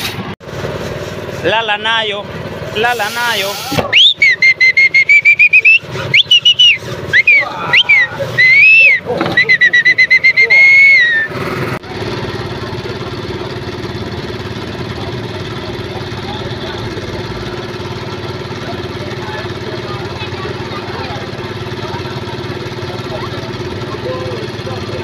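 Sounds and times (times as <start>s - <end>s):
street noise: 0.0s - 25.0s
loud high whistling: 3.8s - 11.4s.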